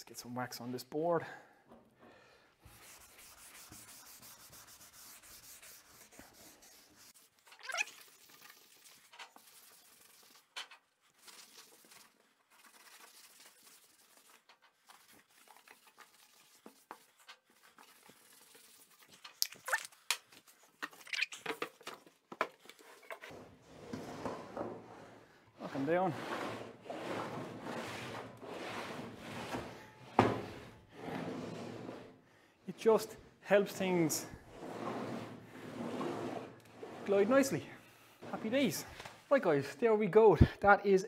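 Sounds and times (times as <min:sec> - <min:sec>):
wax rubbed onto wood: 0:02.7 - 0:10.6, 0:11.2 - 0:19.2, 0:25.6 - 0:29.6.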